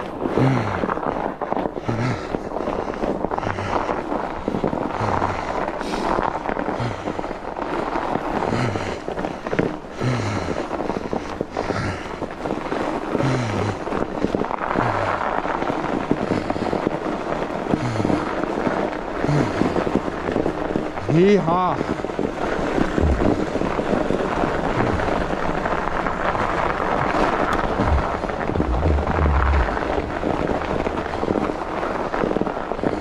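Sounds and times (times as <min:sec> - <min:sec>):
tyres crunching over snow: 0:00.0 - 0:33.0
person breathing hard: 0:00.2 - 0:07.5, 0:08.2 - 0:15.4, 0:16.1 - 0:16.9, 0:17.7 - 0:18.5, 0:19.2 - 0:20.0, 0:22.7 - 0:23.6, 0:24.7 - 0:25.2, 0:26.3 - 0:31.4.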